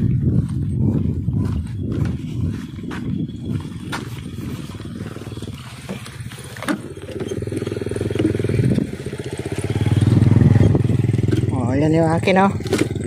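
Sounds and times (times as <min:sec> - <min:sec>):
motorcycle engine rumbling: 0:00.0 - 0:13.0.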